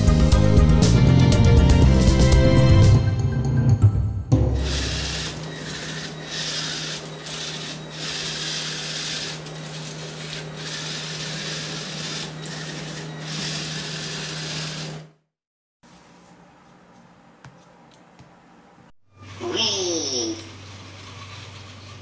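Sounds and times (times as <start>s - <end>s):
robot motors grinding whir: 4.6s - 15.1s.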